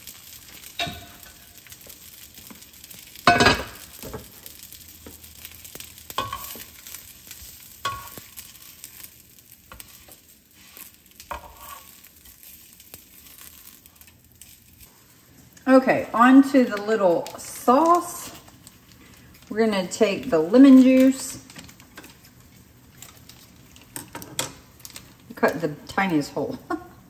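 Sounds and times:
chicken sizzling in a skillet: 0.0 - 27.0
metal tongs clinking on pan: 0.6 - 1.6, 6.0 - 6.9, 7.8 - 8.5.

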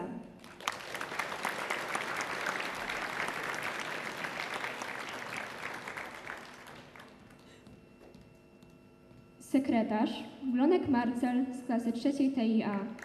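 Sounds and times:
crowd applauding: 0.4 - 7.6.

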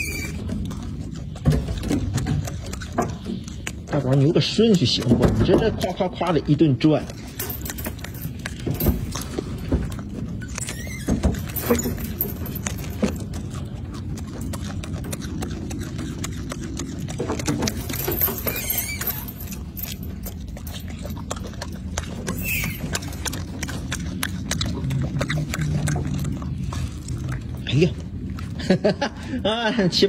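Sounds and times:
monkey chewing clicks and smacks: 0.0 - 30.0
steady low rumble: 19.3 - 30.0.

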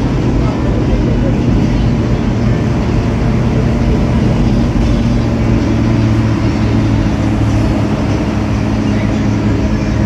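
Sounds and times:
bus engine droning: 0.0 - 10.0.

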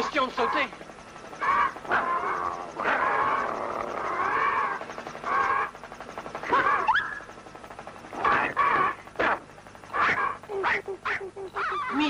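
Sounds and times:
cartoon animal cries: 9.9 - 12.0.

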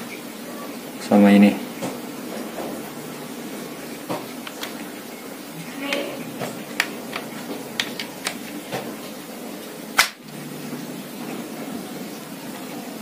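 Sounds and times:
air rifle parts clicking: 7.8 - 8.4, 10.0 - 10.2.

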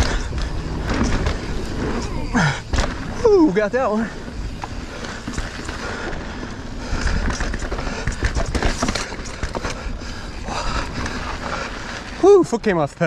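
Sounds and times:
bike clattering knocks: 0.0 - 3.3, 4.2 - 12.1
steady low rumble: 0.0 - 12.3
bike tyres rolling on dirt: 0.0 - 13.0.

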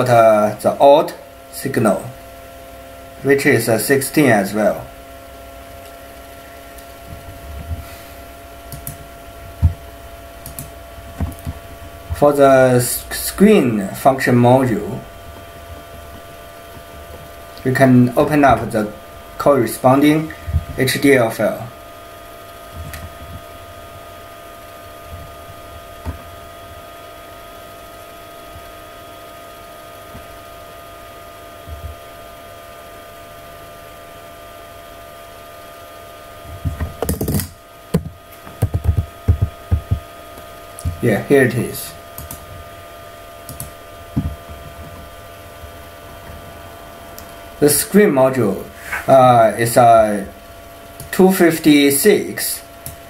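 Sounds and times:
steady background hum: 0.0 - 53.0
soft low thumps: 9.0 - 10.0, 11.0 - 12.2, 20.4 - 20.8, 22.7 - 24.0, 36.4 - 37.1, 37.9 - 40.1, 44.1 - 45.2.

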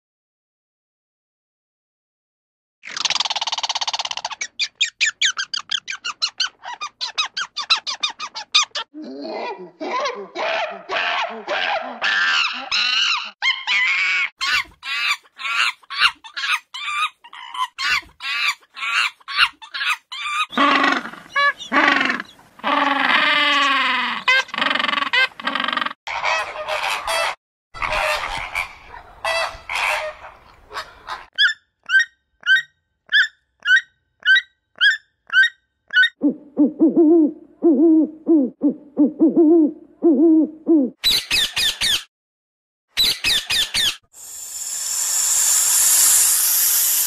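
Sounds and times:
monkeys chattering: 14.4 - 26.0
fast pulsing trills: 44.2 - 47.0
low pitch-bending calls: 44.2 - 47.0.

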